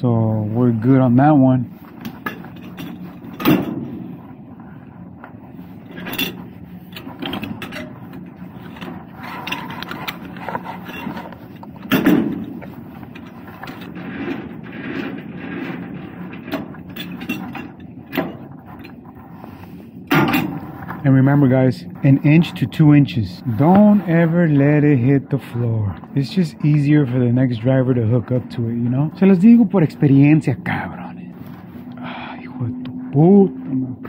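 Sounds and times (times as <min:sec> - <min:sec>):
metal clunks and knocks: 0:08.8 - 0:13.3.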